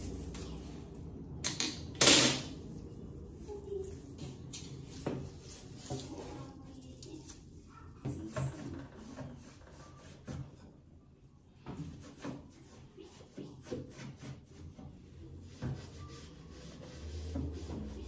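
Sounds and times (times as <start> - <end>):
cloth wiping range hood: 3.3 - 7.0, 11.7 - 18.0.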